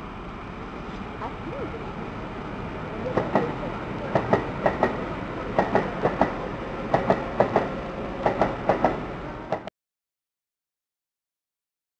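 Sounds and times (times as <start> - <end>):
train rumble: 0.0 - 9.7
train wheels clicking over rail joints: 3.1 - 9.7.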